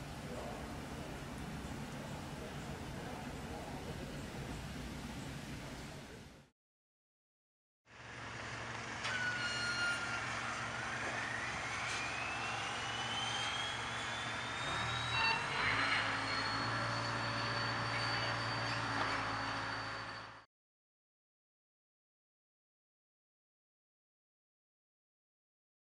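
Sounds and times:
high mechanical whine rising: 7.9s - 20.5s
low hum: 8.0s - 20.5s.

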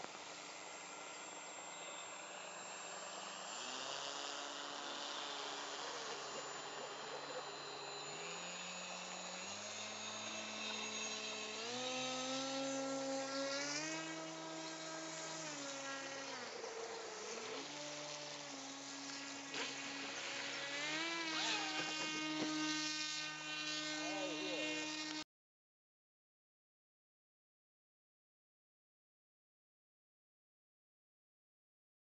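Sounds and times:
model boat electric motor whining: 0.0s - 25.2s.

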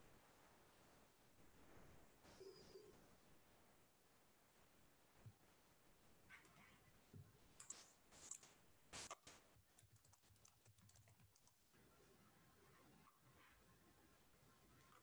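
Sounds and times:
typing on computer keyboard: 9.7s - 11.6s.

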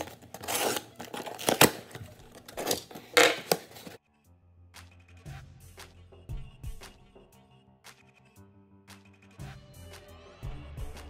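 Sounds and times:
cardboard box rustling scrapes: 0.0s - 4.0s
soft music: 0.0s - 11.0s.

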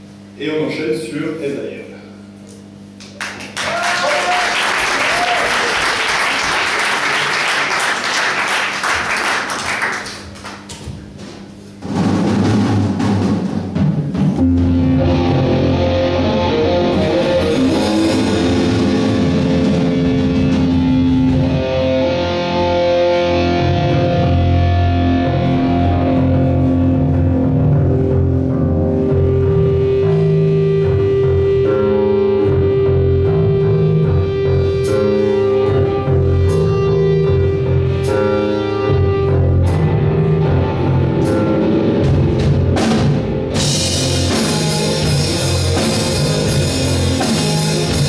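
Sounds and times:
audience applauding: 3.0s - 10.8s
rock band playing: 11.8s - 48.0s.

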